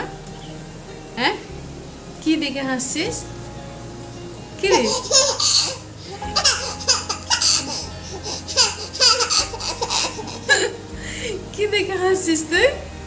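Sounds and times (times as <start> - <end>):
baby laughing: 4.6 - 10.8.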